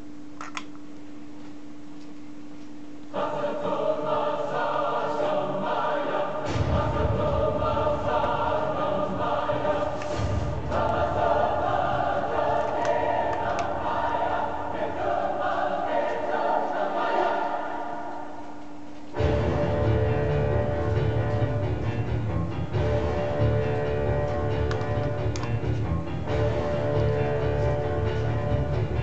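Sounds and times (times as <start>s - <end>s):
choir singing held chords: 3.0s - 29.0s
deep low rumble: 6.5s - 14.9s.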